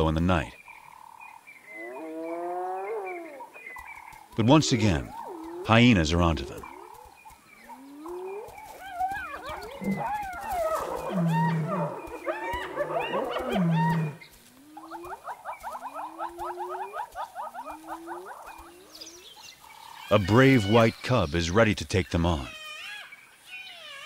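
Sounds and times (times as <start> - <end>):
high giggling calls: 7.7 - 19.3
hyenas whooping and squealing: 7.7 - 19.3.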